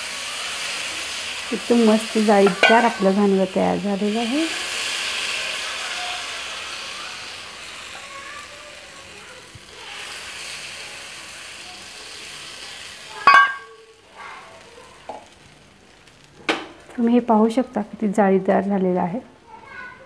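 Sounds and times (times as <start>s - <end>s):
batter sizzling on a hot pan: 0.0s - 17.9s
sharp metallic clink: 13.2s - 13.8s.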